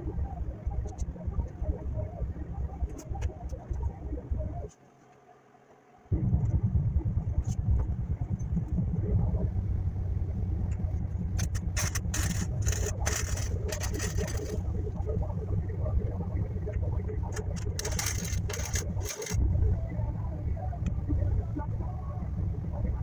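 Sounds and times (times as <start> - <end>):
steady low rumble: 0.0 - 4.7, 6.1 - 23.0
arc welder crackling: 10.8 - 15.1, 16.8 - 19.4.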